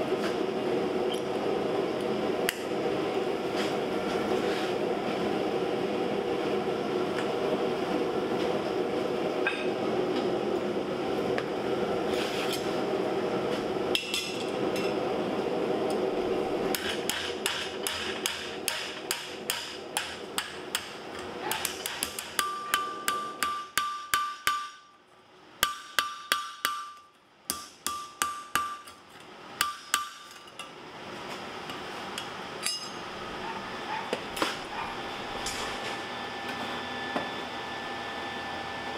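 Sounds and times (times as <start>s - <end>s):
hammer striking steel: 16.7s - 25.0s, 25.6s - 29.0s, 29.6s - 30.7s, 32.6s - 33.1s.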